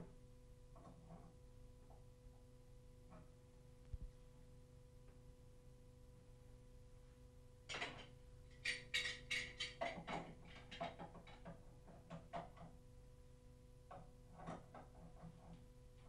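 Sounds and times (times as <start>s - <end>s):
faint steady hum: 0.0s - 16.0s
tools clinking on metal nuts: 8.5s - 10.0s.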